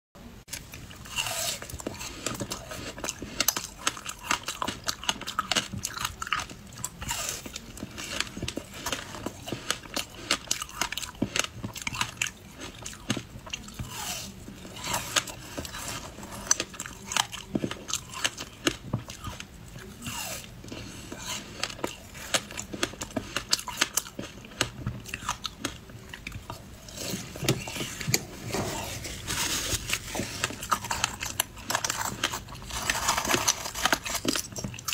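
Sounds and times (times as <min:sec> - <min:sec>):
ice crunching being chewed: 0:00.5 - 0:34.9.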